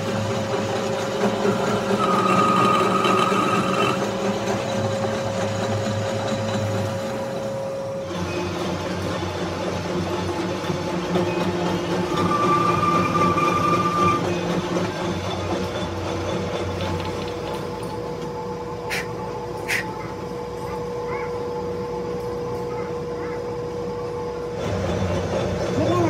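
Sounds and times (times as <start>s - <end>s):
metal lathe running: 0.0s - 26.0s.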